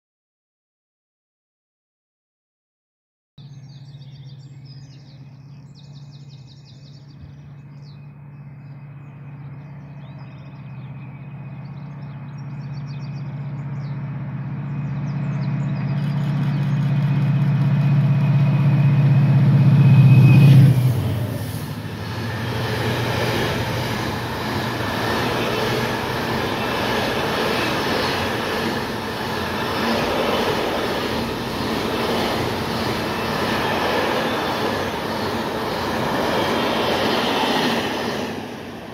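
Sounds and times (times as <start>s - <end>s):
faint birdsong: 3.4s - 38.9s
locomotive engine drone: 3.4s - 38.9s
train wagons rattling on rails: 21.3s - 38.9s.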